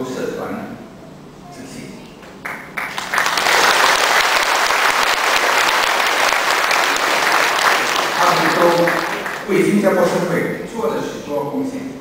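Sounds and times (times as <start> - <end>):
audience applauding: 2.4 - 9.7.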